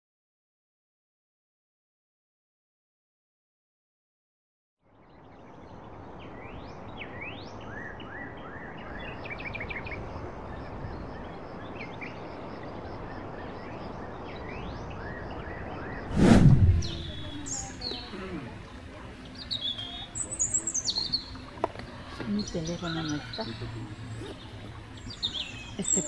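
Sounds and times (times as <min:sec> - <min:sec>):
outdoor background noise: 0:04.8 - 0:26.0
birds whistling and chirping: 0:16.8 - 0:18.1, 0:19.3 - 0:21.4, 0:22.1 - 0:26.0.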